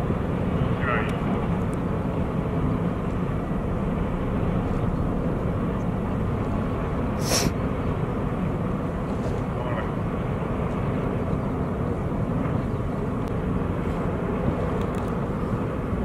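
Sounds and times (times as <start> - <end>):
ship engines rumbling: 0.0 - 16.0
brief hiss: 7.2 - 7.6.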